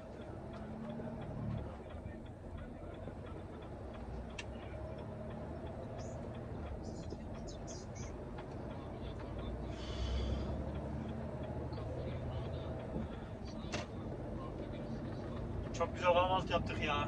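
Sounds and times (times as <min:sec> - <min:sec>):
truck engine rumble: 0:00.0 - 0:17.0
turn signal ticking: 0:00.0 - 0:17.0.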